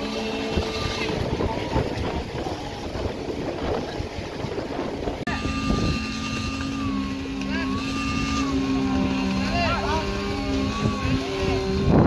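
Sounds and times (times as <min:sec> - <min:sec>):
rough engine noise: 0:00.0 - 0:12.0
steady engine hum: 0:00.0 - 0:12.0
high machine whine: 0:05.3 - 0:12.0.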